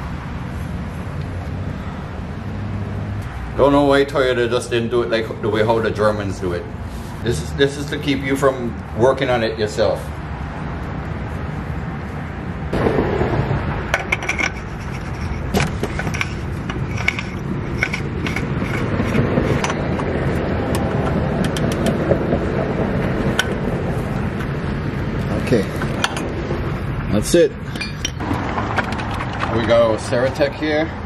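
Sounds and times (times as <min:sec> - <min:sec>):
metal scrapes and knocks: 0:13.9 - 0:20.1.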